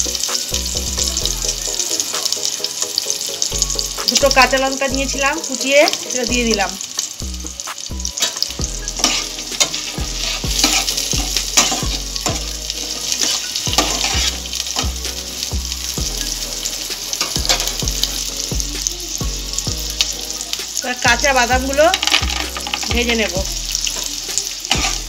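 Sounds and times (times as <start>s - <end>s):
onions sizzling in hot oil: 0.0s - 25.0s
spatula scraping a pan: 8.2s - 15.0s, 24.7s - 25.0s.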